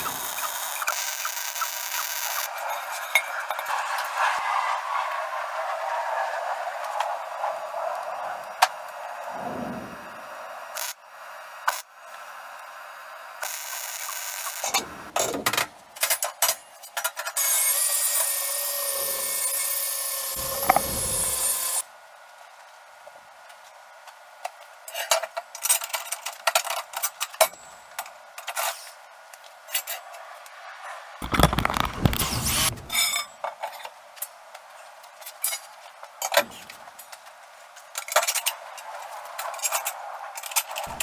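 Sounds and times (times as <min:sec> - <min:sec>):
harsh metal rasping: 0:20.0 - 0:21.8.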